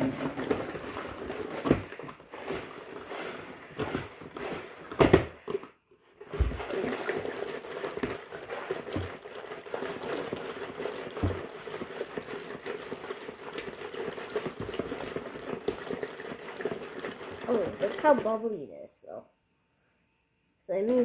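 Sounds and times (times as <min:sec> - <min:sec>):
washing machine motor hum: 0:00.0 - 0:18.7
water churning in tub: 0:06.3 - 0:18.4.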